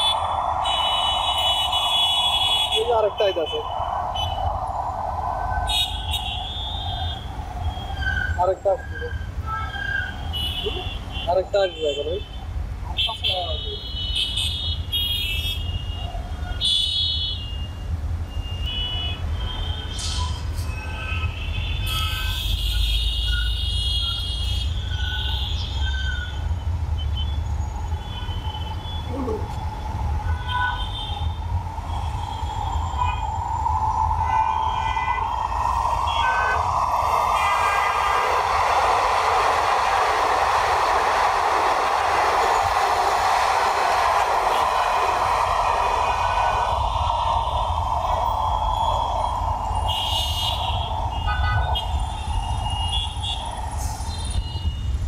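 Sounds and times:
road traffic rumble: 0.0 - 55.0
train wheels rushing on rail: 29.1 - 54.6.

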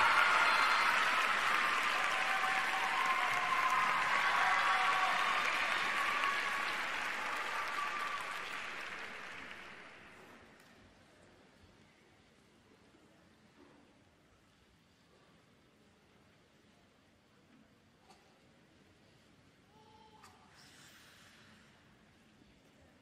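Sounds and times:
crowd applauding: 0.0 - 10.5.

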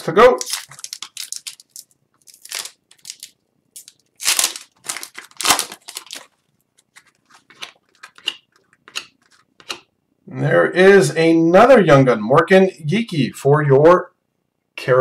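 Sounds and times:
card wrapper tearing and crinkling: 0.0 - 9.6.

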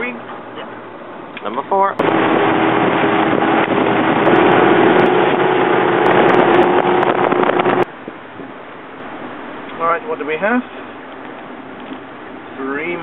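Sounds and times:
loud rushing noise: 2.0 - 7.9
outboard motors running: 2.0 - 9.8.

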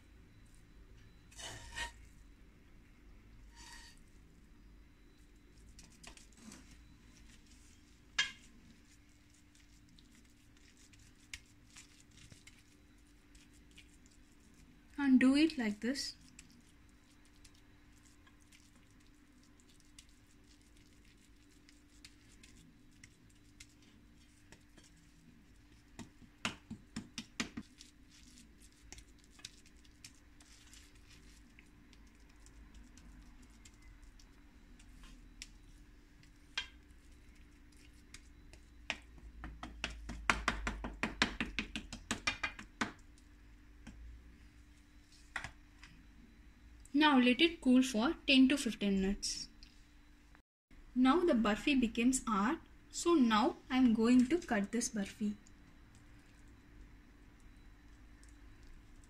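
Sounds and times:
faint steady hum: 0.0 - 59.0
spatula scraping steel plate: 1.3 - 2.1, 3.5 - 4.0.

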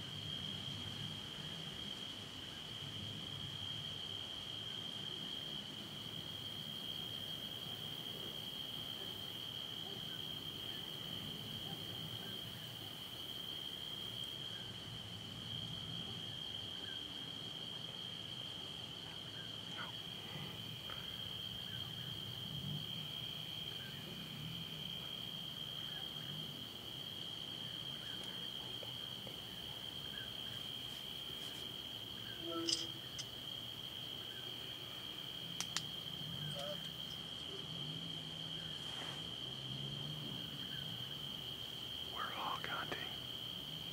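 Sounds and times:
crickets trilling: 0.0 - 43.9
quick clicks: 32.6 - 33.3, 35.6 - 35.9.

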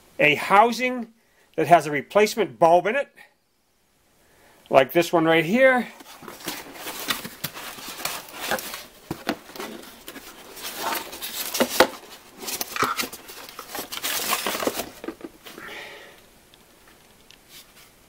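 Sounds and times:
cardboard rustling and crinkling: 5.8 - 15.6.

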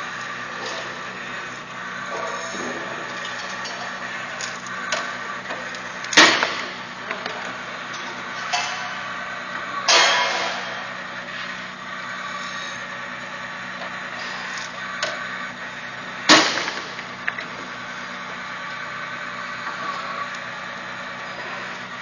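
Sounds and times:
press machine humming: 0.0 - 22.0
loud metallic clanks: 9.9 - 10.9, 16.3 - 17.0.

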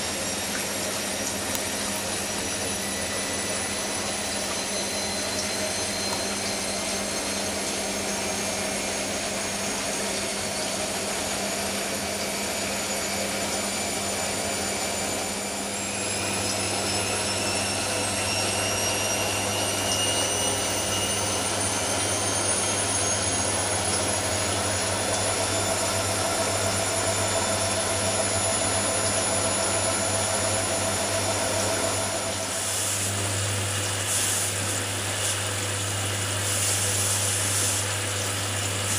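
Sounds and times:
washing machine motor whining: 0.0 - 38.9.

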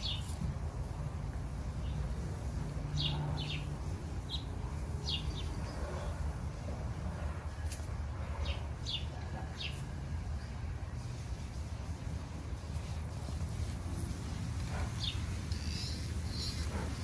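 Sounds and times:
small birds chirping: 0.0 - 1.0, 1.6 - 6.8, 7.7 - 9.8, 14.0 - 17.0.

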